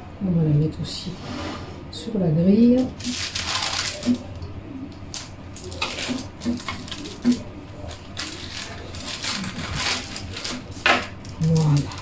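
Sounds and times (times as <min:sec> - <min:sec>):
baking paper rustling: 0:02.7 - 0:04.4, 0:05.1 - 0:12.0.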